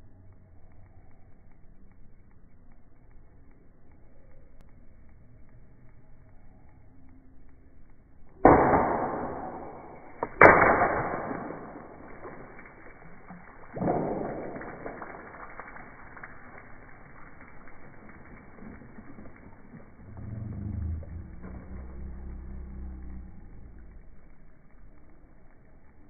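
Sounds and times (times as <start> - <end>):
water splashing onto concrete: 8.4 - 26.0.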